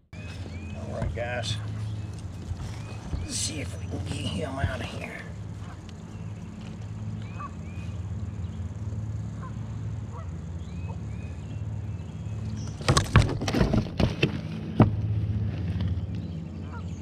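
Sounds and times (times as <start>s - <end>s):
steady low hum: 0.0s - 13.2s
honking bird calls: 0.2s - 8.1s, 9.3s - 11.4s
knocks and rattles of gear: 12.5s - 16.4s.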